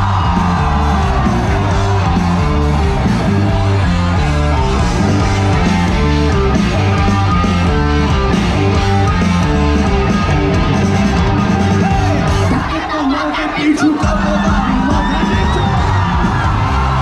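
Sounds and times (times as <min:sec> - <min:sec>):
electric guitar: 0:00.0 - 0:12.8
heavy bass line: 0:00.0 - 0:13.0, 0:13.8 - 0:17.0
live rock band playing: 0:00.0 - 0:17.0.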